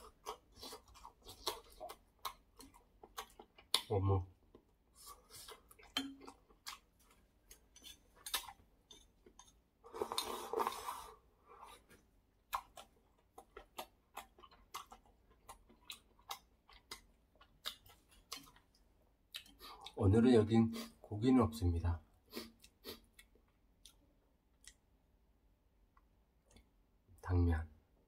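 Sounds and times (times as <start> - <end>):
chewing with wet clicks: 0.0 - 10.4, 12.4 - 20.0, 22.5 - 25.0, 25.9 - 26.8
slurp of broth: 9.9 - 11.8.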